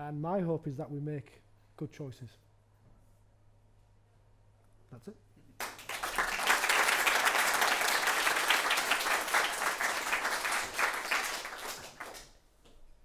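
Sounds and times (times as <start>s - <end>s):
audience applauding: 5.6s - 12.4s.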